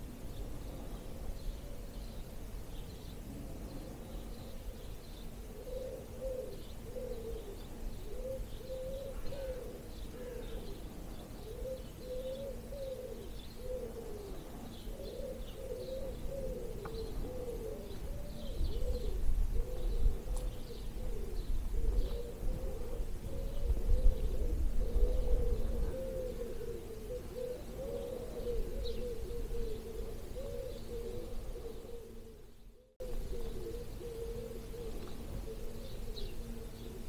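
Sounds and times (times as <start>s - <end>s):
pigeons cooing: 0.0s - 37.0s
songbirds chirping faintly: 0.0s - 37.0s
wind rumble on microphone: 15.9s - 34.0s.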